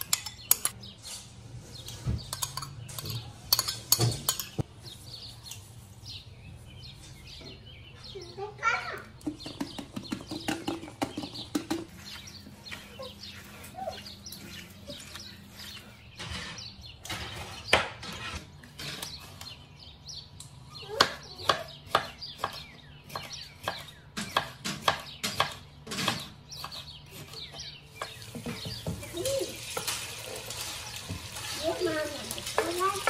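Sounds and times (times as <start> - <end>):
knife chopping on wooden board: 21.0 - 28.9.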